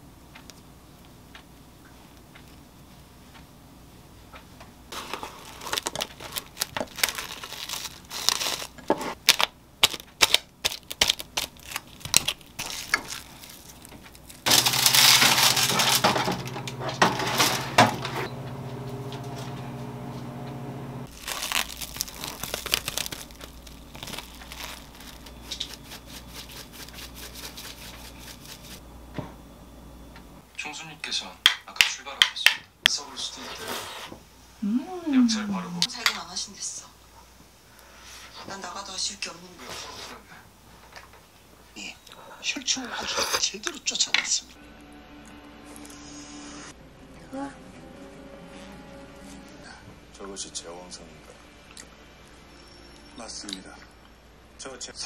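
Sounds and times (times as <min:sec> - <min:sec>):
air fryer humming whir: 0:14.0 - 0:21.2, 0:27.8 - 0:30.9.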